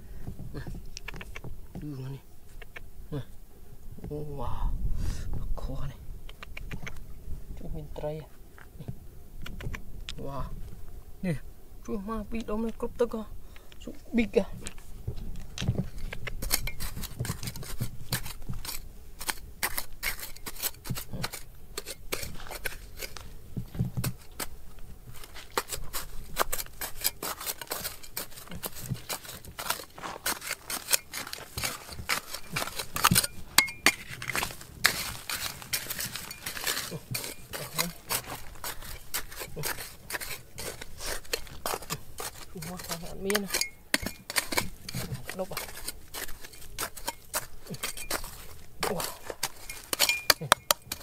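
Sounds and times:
hand tools scraping rock: 11.2 - 51.0
stones clinking: 25.2 - 51.0.

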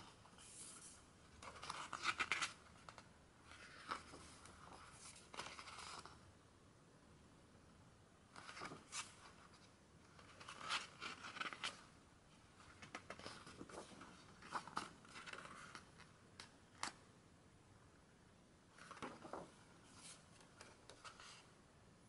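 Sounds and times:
paper pages rustling: 0.0 - 6.2, 8.3 - 17.0, 18.8 - 21.5.

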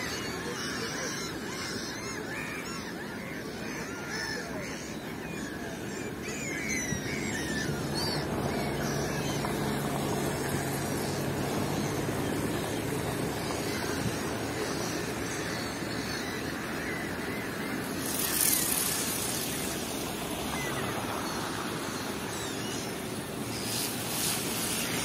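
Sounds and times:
steady background noise: 0.0 - 25.0
vehicle engine humming: 7.1 - 25.0.

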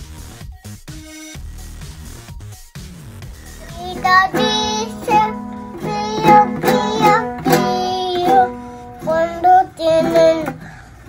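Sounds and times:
toddler singing: 3.6 - 10.7
toy ukulele strumming: 3.6 - 10.7.

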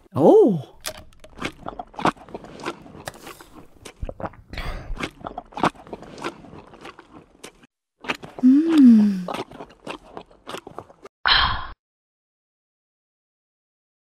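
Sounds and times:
person vocal exclamation: 0.1 - 0.7, 8.4 - 9.3.

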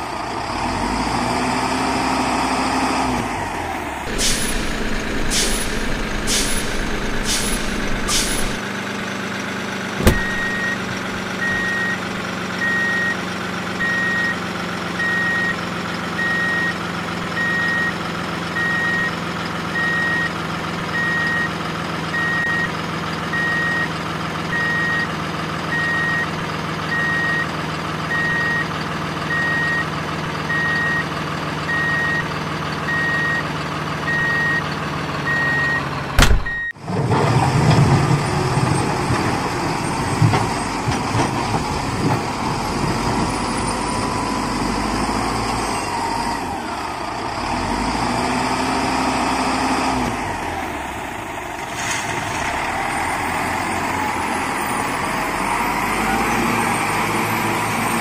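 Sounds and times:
truck engine running: 3.4 - 26.9, 27.5 - 36.7
short high hisses: 4.1 - 8.6
reversing alarm beeping: 10.0 - 13.2, 34.1 - 34.6, 35.3 - 36.8.

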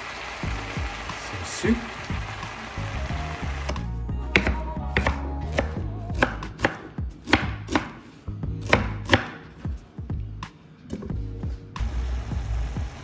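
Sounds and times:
knife chopping on cutting board: 4.4 - 9.4.

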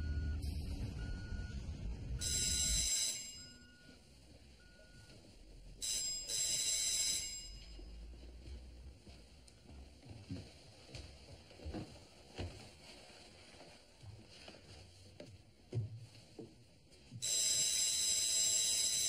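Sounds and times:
low rumble: 0.0 - 2.6
telephone ringing: 2.2 - 4.0, 5.8 - 7.9, 17.2 - 19.0.

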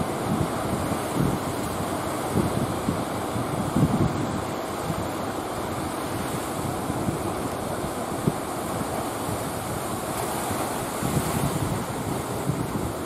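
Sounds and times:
rough sea and surf: 0.0 - 13.0
wind buffeting microphone: 0.0 - 13.0.

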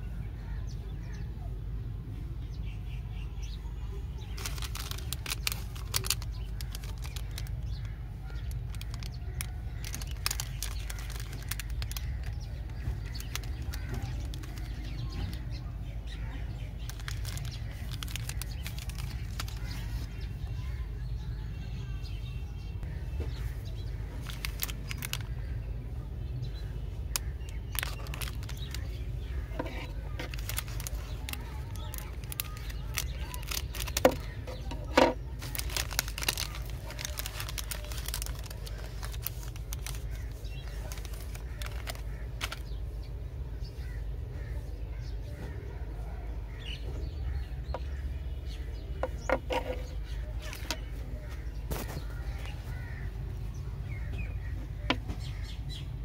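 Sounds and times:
plastic wrapper crinkling: 4.2 - 15.6, 16.4 - 20.4, 24.1 - 25.5, 26.5 - 43.0, 49.0 - 53.0
crows cawing: 39.7 - 42.8, 51.2 - 53.3.

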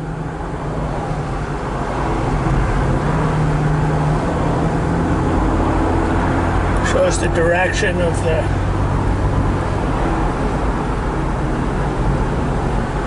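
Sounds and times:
car engine cruising: 0.0 - 13.0
tyre and road noise: 0.0 - 13.0.

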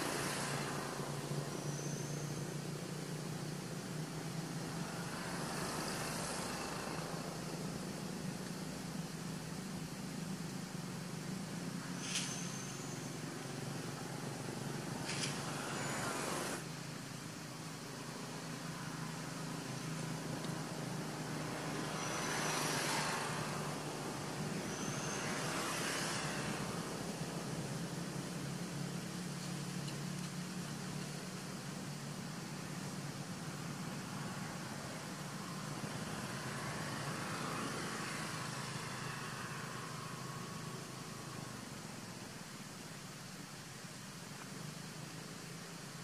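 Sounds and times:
vehicle passing: 0.0 - 8.3, 18.4 - 29.3, 33.7 - 41.7
distant road traffic hum: 0.0 - 46.0.

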